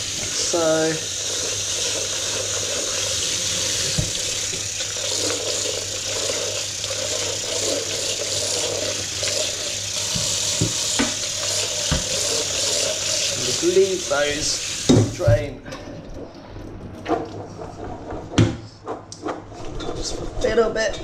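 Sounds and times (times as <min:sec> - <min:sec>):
water splashing into sink: 0:00.0 - 0:15.5.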